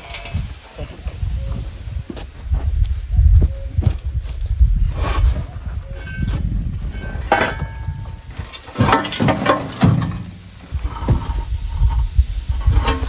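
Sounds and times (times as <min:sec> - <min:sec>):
scrap metal clanking: 0:00.0 - 0:00.9, 0:04.9 - 0:13.0
low rumble: 0:10.1 - 0:13.0.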